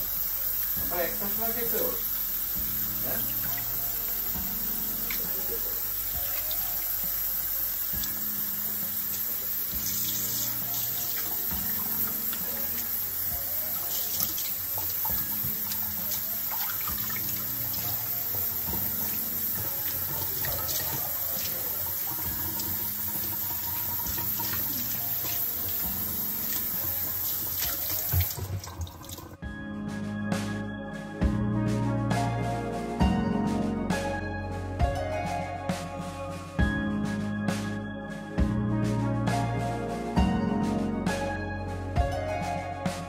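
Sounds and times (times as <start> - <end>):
tap running into bowl of water: 13.8 - 29.4
water splashing: 26.4 - 29.4.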